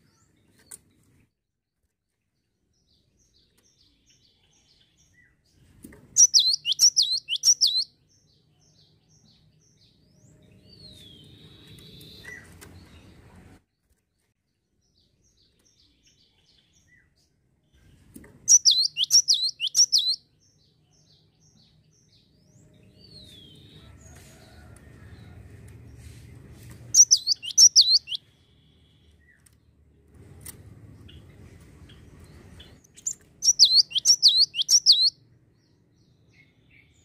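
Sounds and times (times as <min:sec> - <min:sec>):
bird singing sharp falling notes: 0:06.2 - 0:07.8, 0:18.5 - 0:20.2, 0:27.0 - 0:28.2, 0:32.9 - 0:35.1.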